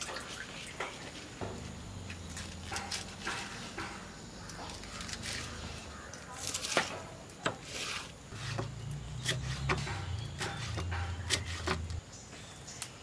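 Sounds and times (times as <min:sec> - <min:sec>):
knife chopping on wooden block: 0:08.4 - 0:12.0.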